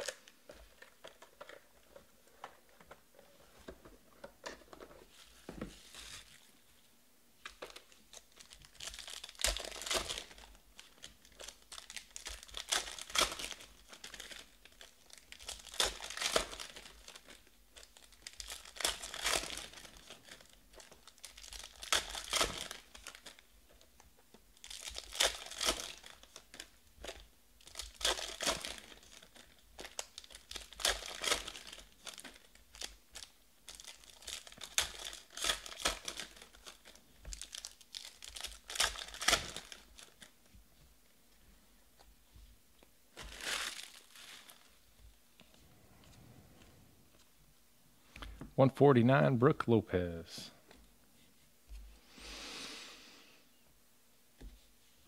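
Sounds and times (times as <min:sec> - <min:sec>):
plastic wrappers crinkling and tearing: 0:00.0 - 0:03.0, 0:07.4 - 0:40.5, 0:43.1 - 0:45.5.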